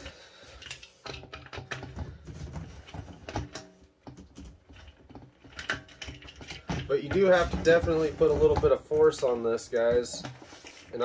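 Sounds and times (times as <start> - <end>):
plastic clicks and knocks: 0.6 - 10.5.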